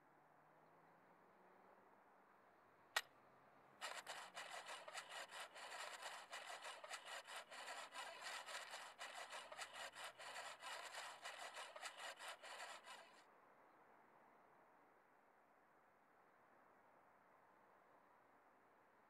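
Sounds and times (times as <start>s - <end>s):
knob turning with fast clicks: 3.8s - 13.2s.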